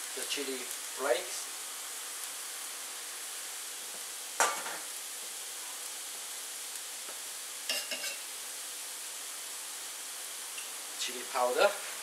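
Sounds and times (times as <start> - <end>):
chilli flakes sizzling in oil: 0.0 - 12.0
light utensil clinks: 7.7 - 8.2.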